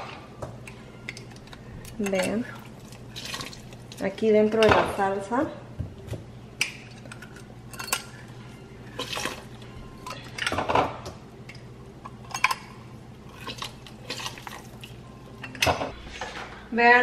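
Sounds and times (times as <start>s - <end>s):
metal tools clinking on pot: 1.0s - 4.1s, 6.9s - 8.2s, 12.2s - 12.7s.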